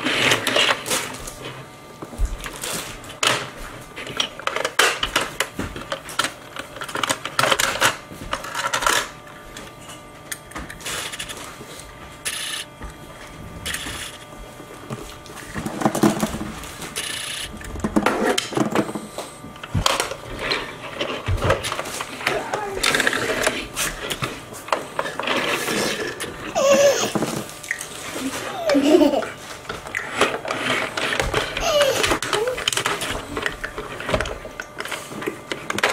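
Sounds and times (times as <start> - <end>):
plastic toys clattering on tabletop: 3.2 - 9.1, 15.5 - 19.0, 19.8 - 35.9.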